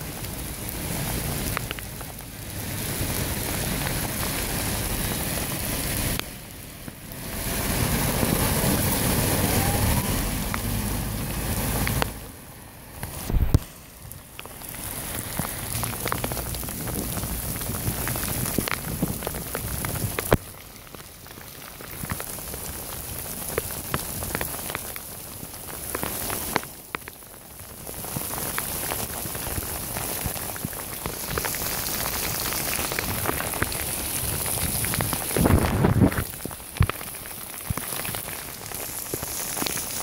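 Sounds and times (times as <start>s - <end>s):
torrential rain on a street: 0.0s - 40.0s.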